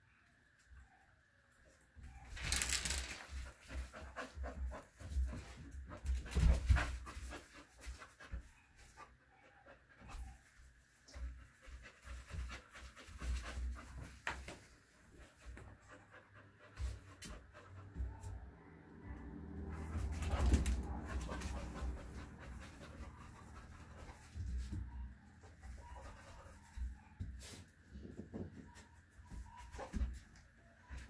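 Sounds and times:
large dog panting: 19.8 - 24.4.

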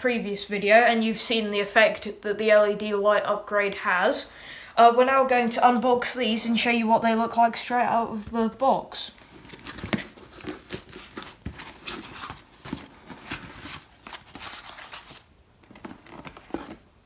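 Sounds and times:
packing material rustling: 9.1 - 17.0.

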